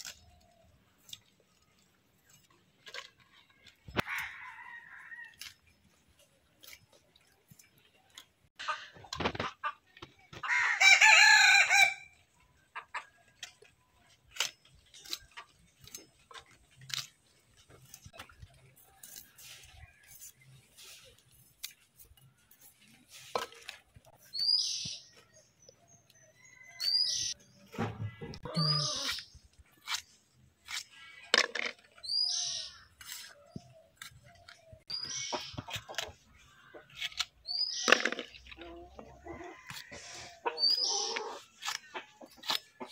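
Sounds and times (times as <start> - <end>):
rooster crowing: 4.1 - 5.3, 10.5 - 12.1
bird calling: 28.0 - 29.4, 39.9 - 42.5.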